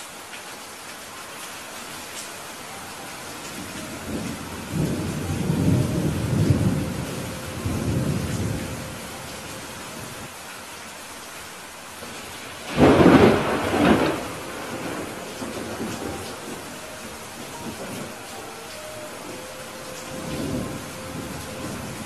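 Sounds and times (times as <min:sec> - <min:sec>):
steady rain: 0:00.0 - 0:22.0
rolling thunder: 0:03.5 - 0:10.3, 0:12.5 - 0:22.0
loud thunderclap: 0:12.7 - 0:18.2.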